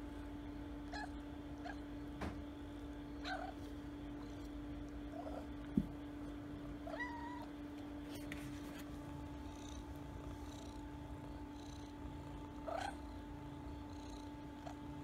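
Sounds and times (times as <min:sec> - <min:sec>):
low hum: 0:00.0 - 0:15.0
cat purring: 0:02.9 - 0:07.5, 0:08.3 - 0:15.0.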